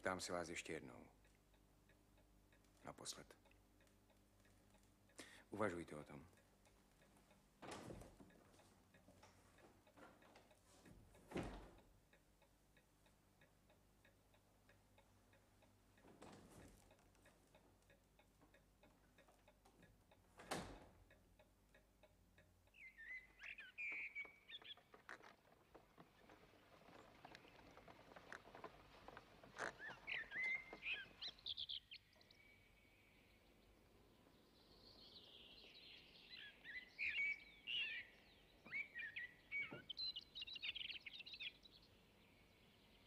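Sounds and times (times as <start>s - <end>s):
birds chirping: 0.0s - 7.6s, 21.0s - 43.0s
clock ticking: 0.0s - 32.4s.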